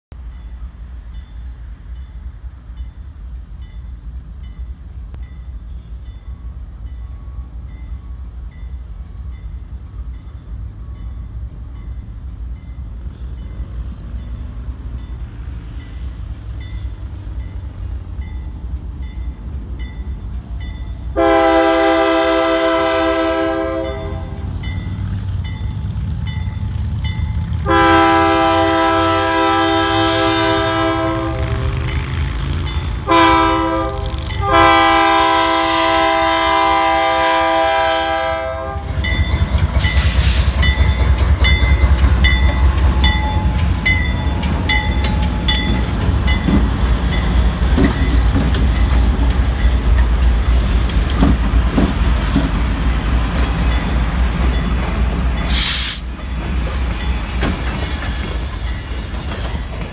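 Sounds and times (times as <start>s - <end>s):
diesel locomotive rumble: 0.1s - 59.9s
locomotive air horn blasts: 21.2s - 24.5s, 27.6s - 31.9s, 33.0s - 39.0s, 55.5s - 56.0s.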